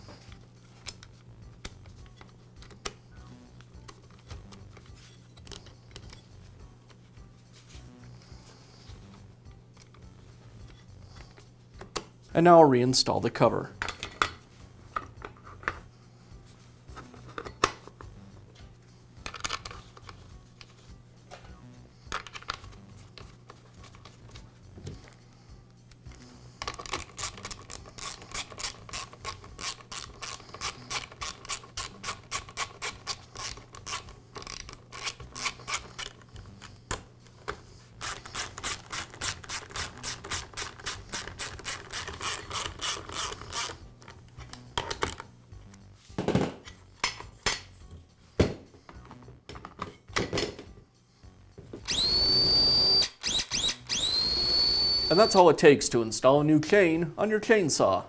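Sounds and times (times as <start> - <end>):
socket ratchet clicking: 26.6 - 37.0, 38.0 - 43.8, 51.9 - 55.3.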